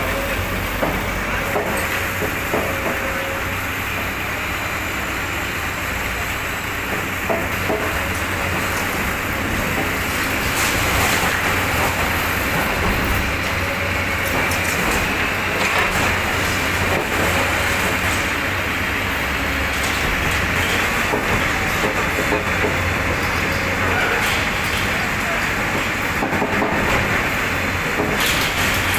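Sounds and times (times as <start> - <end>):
debris knocking and clattering: 19.7 - 28.9.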